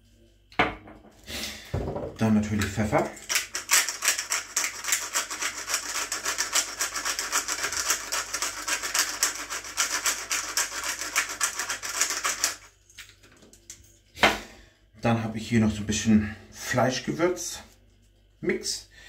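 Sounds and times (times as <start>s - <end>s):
pepper grinder crunching: 2.5s - 13.1s.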